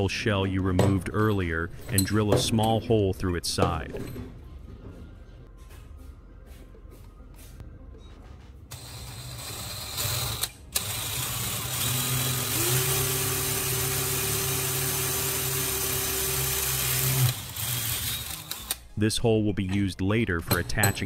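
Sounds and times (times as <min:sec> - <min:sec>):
electric drill cutting metal: 0:08.7 - 0:18.8.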